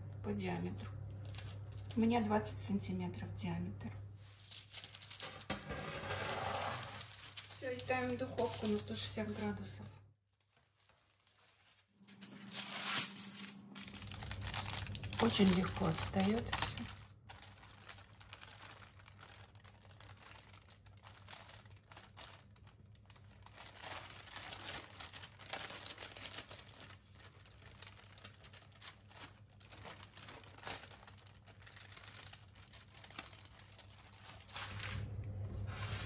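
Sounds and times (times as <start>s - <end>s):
baking paper crinkling: 0.3s - 3.0s, 4.2s - 36.0s.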